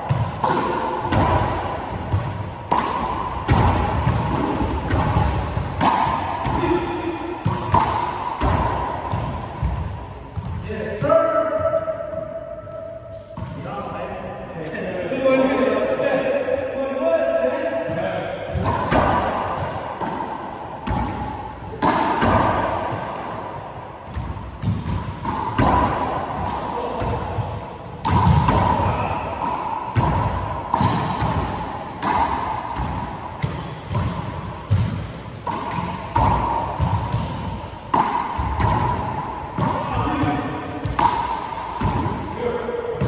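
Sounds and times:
sneakers squeaking on hardwood floor: 0:22.9 - 0:25.1.

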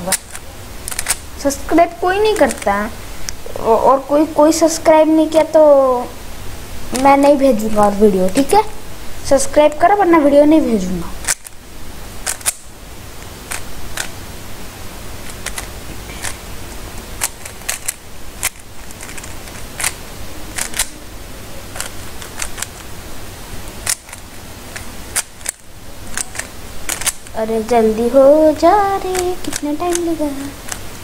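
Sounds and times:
puzzle cube clicking: 0:00.0 - 0:03.4, 0:06.9 - 0:08.5, 0:11.1 - 0:11.6, 0:12.2 - 0:14.2, 0:15.2 - 0:16.4, 0:17.0 - 0:21.0, 0:21.7 - 0:22.9, 0:23.7 - 0:27.4, 0:28.6 - 0:30.9.

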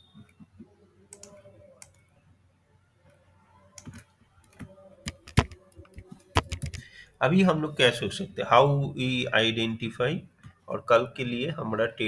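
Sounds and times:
computer keyboard clicks: 0:01.1 - 0:02.0, 0:03.8 - 0:06.8
mouse clicks: 0:01.1 - 0:02.0.

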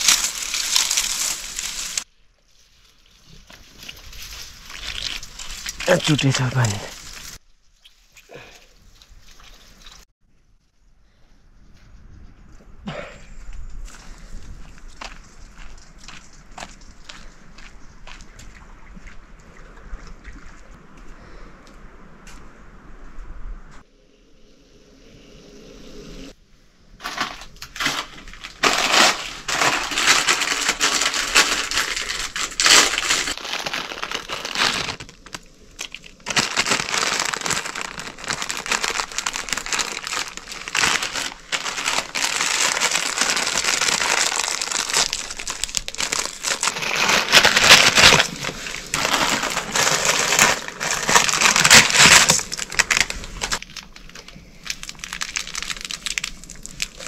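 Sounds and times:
plastic packaging crinkling: 0:00.0 - 0:02.1, 0:02.7 - 0:07.4, 0:27.0 - 0:57.0.

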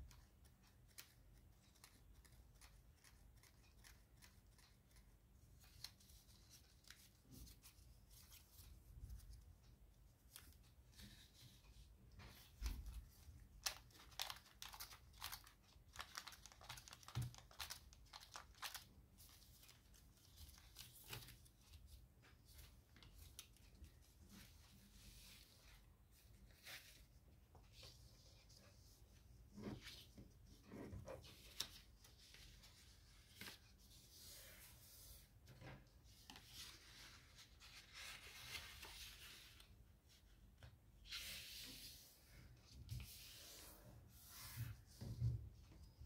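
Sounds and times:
paper crinkling: 0:12.4 - 0:21.9.

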